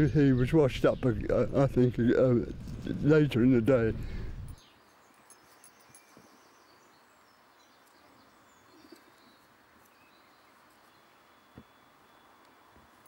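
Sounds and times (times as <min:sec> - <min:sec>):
faint bird chirps: 0:04.5 - 0:13.0.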